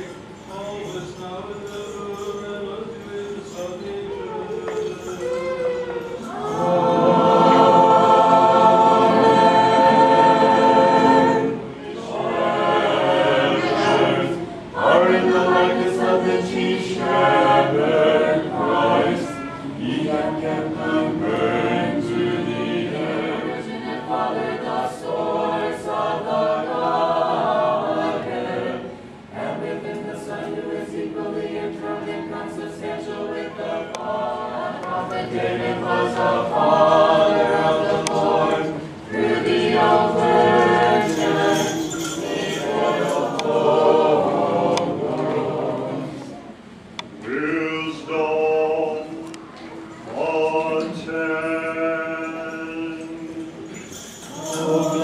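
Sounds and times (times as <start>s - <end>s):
mixed choir chanting: 2.0s - 55.0s.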